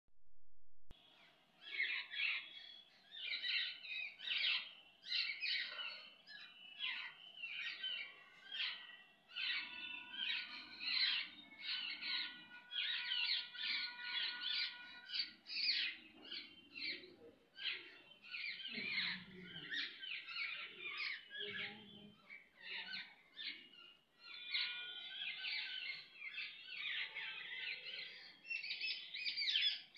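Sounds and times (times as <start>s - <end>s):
sparrows chirping: 1.0s - 29.9s.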